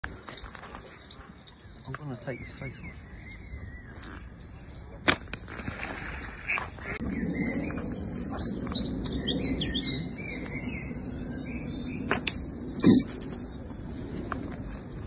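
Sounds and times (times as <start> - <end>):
small birds chirping and singing: 0.0 - 5.0, 6.4 - 15.0.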